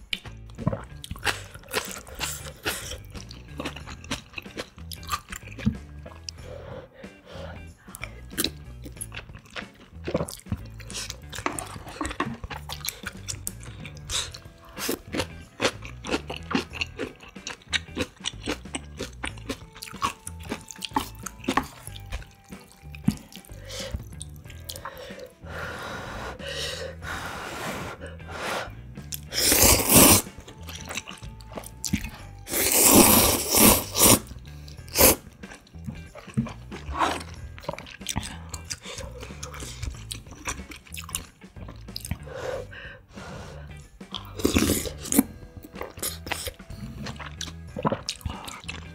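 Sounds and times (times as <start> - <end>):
quiet background music: 0.0 - 48.9
chewing: 0.5 - 6.4, 7.8 - 25.4, 29.1 - 42.4, 44.0 - 48.9
slurping noodles: 0.6 - 3.8, 27.1 - 35.3, 36.2 - 40.6, 41.7 - 48.9
sipping broth: 29.2 - 35.2.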